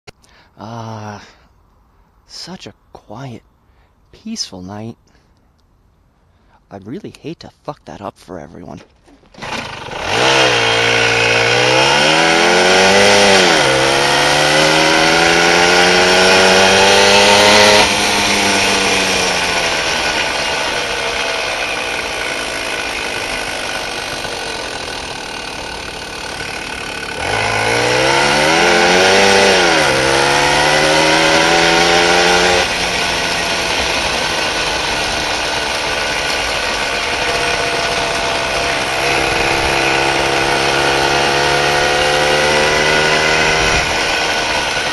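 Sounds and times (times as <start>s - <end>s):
small engine revving: 9.1s - 44.9s.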